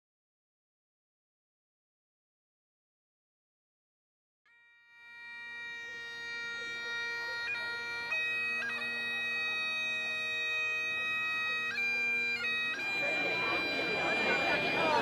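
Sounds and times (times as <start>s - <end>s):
bagpipes playing slow tune: 4.5s - 15.0s.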